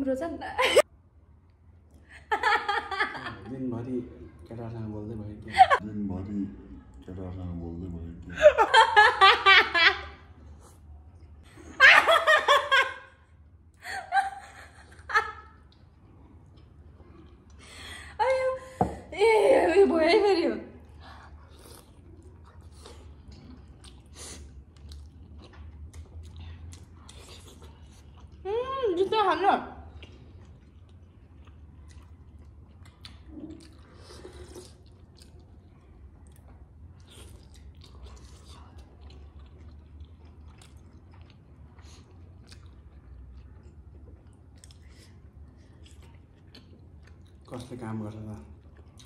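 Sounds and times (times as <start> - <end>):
faint chewing: 15.5 - 17.6, 20.8 - 28.4, 29.8 - 49.0
wet slurp: 33.3 - 35.4.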